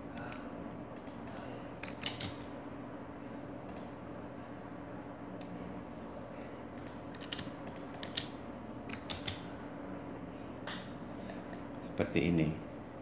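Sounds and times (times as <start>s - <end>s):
steady low hum: 0.0s - 13.0s
keyboard and mouse clicks: 1.0s - 2.4s, 6.8s - 8.3s, 8.9s - 9.4s.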